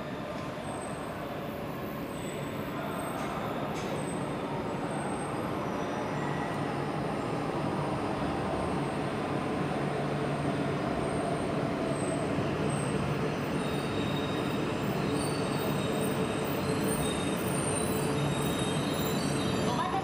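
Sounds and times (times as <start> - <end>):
brake and wheel squeals: 11.9 - 19.9.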